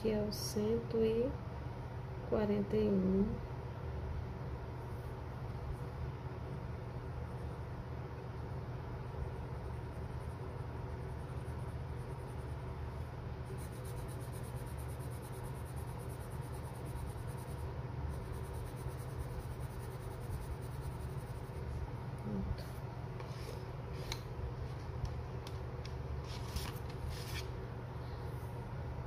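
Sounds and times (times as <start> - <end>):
steady low hum: 0.0 - 29.0
pencil scratching on paper: 9.2 - 12.7, 13.4 - 21.8.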